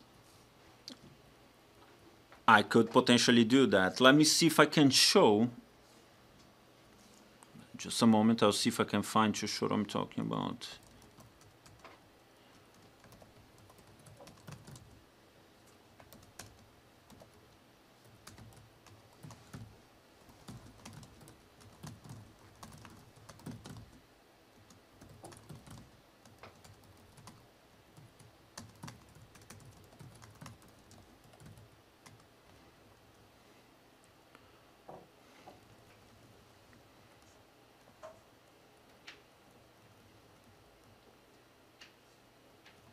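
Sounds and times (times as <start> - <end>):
low room hum: 0.0 - 42.9
laptop keyboard typing: 10.8 - 15.0, 15.7 - 24.0, 24.6 - 32.3.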